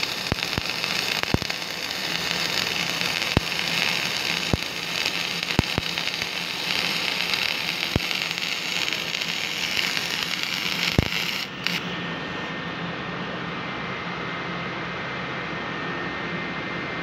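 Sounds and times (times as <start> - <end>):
spatter pops: 0.0 - 11.8
welding arc crackling and hissing: 0.0 - 12.0.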